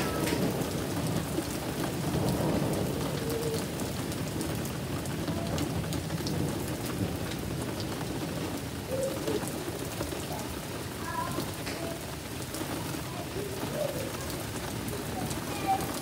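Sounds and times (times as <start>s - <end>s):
low thunder rumble: 0.0s - 9.6s
rain falling steadily: 0.0s - 16.0s.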